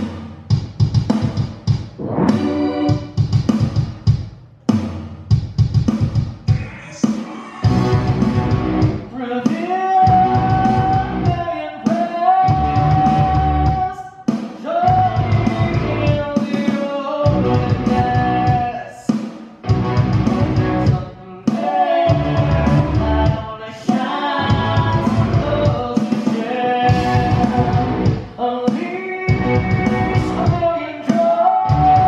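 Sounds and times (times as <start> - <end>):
live rock band with drums: 0.0 - 32.0.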